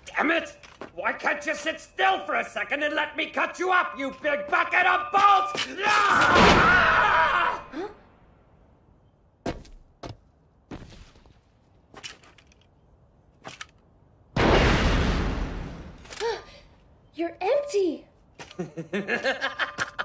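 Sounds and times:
man yelling: 1.4 - 7.7.

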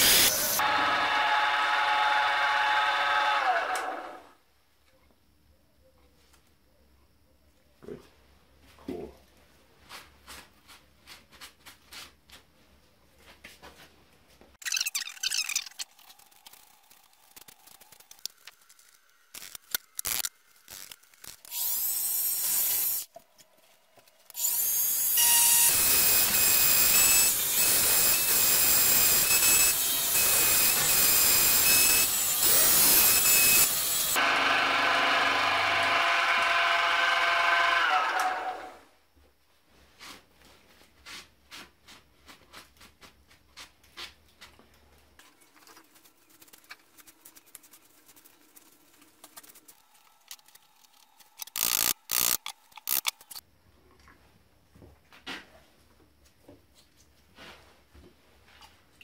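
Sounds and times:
loud rushing hiss: 0.0 - 0.6
motorised tool whining: 24.3 - 38.8, 51.4 - 53.4.

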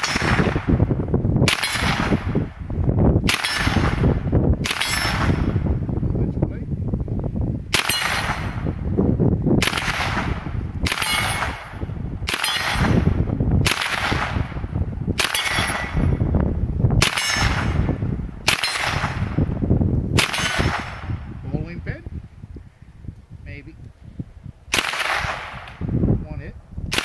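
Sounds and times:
gunshots with long echo: 0.0 - 5.9, 7.7 - 21.4, 24.7 - 26.0.

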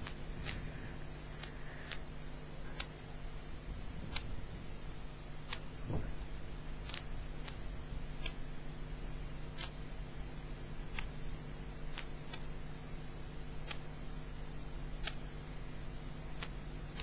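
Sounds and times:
sharp faint clicks: 0.0 - 3.0, 4.1 - 4.4, 6.8 - 7.6, 10.9 - 11.2, 11.9 - 12.5, 13.6 - 13.9, 15.0 - 15.2, 16.4 - 17.0
steady low hum: 0.0 - 17.0
soft low thump: 5.8 - 6.3.

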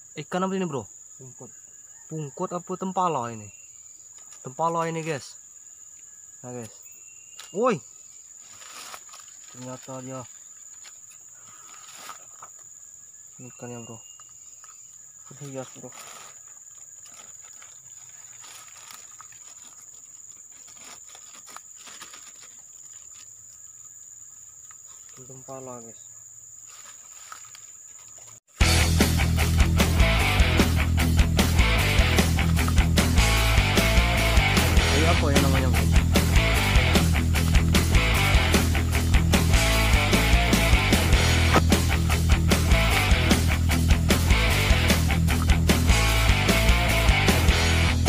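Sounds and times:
insects droning: 0.0 - 48.0
plastic bag rustling: 8.4 - 10.8, 15.4 - 23.2
heavy metal rock music: 28.6 - 48.0.

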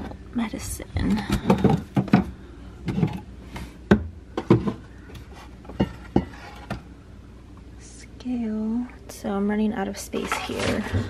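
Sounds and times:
bottles and metal tray clattering: 1.0 - 3.3, 10.1 - 11.0.

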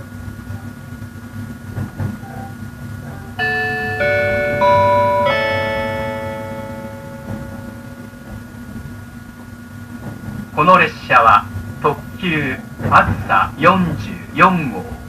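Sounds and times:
electric train rumbling: 0.0 - 15.0
electronic announcement chime: 3.4 - 8.4.

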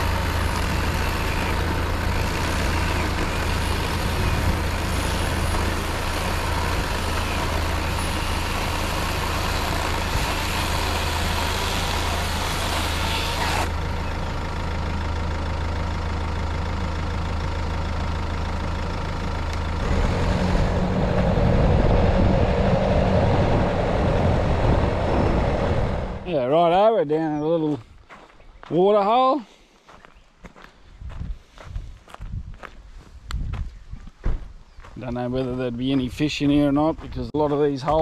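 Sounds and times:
vehicle driving on dirt track: 0.0 - 26.5, 30.5 - 38.0
vehicle engine idling: 0.0 - 26.5.

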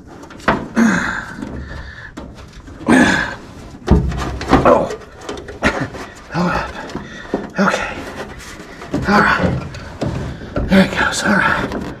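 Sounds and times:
person grunting and breathing hard: 0.6 - 2.2, 2.8 - 3.6, 6.3 - 8.0
knocks and scrapes of a heater box: 3.7 - 12.0.

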